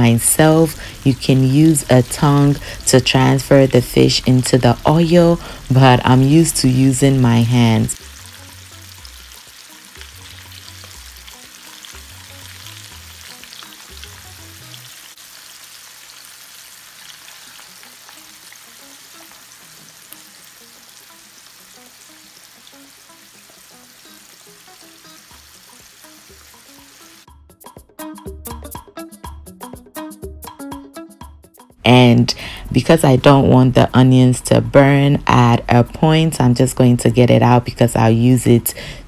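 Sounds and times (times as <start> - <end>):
music: 0.0 - 15.2, 17.0 - 39.0
fish deep-frying in oil: 0.1 - 27.3.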